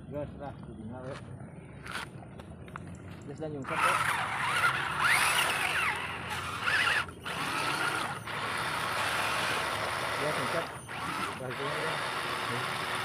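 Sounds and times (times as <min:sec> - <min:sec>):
toy truck electric motors whining: 0:03.6 - 0:13.0
trucks churning through muddy water: 0:03.7 - 0:13.0.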